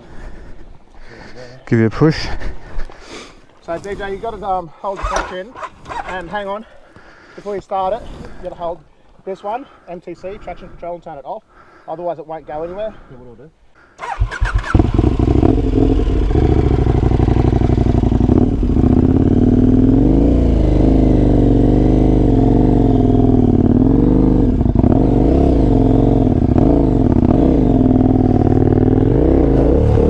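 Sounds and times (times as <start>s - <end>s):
motorcycle engine revving: 5.0s - 6.4s, 14.0s - 30.0s.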